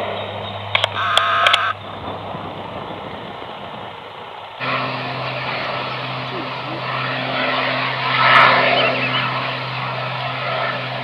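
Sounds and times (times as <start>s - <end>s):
propeller aircraft engine drone: 0.0s - 11.0s
sharp clicks: 0.7s - 1.8s.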